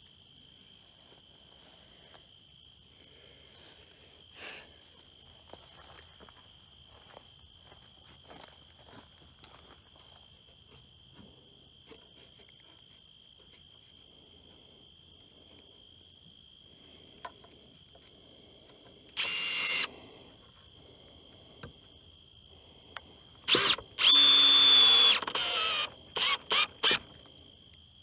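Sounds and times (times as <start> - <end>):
cordless drill driving screws: 19.2 - 19.9, 23.5 - 27.1.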